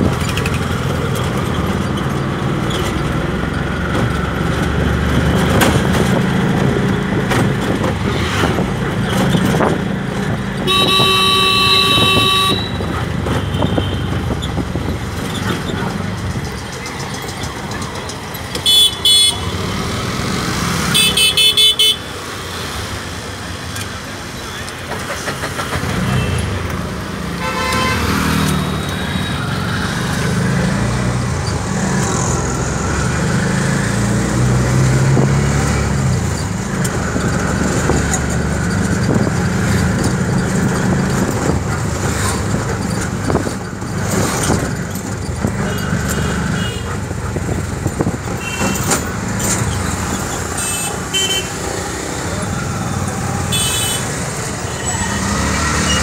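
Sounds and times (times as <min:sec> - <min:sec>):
auto rickshaw engine running: 0:00.0 - 0:56.0
vehicle horns tooting: 0:10.6 - 0:14.3, 0:18.6 - 0:19.7, 0:20.9 - 0:22.1, 0:27.3 - 0:29.5, 0:45.6 - 0:47.0, 0:48.4 - 0:49.0, 0:50.5 - 0:51.8, 0:52.7 - 0:56.0.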